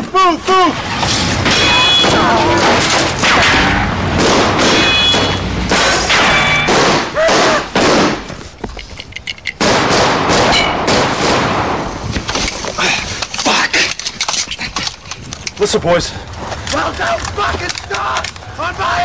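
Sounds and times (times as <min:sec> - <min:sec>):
gunfire: 0:01.4 - 0:08.3, 0:09.6 - 0:12.0
people shouting: 0:01.5 - 0:03.8, 0:07.1 - 0:07.8, 0:16.8 - 0:19.0.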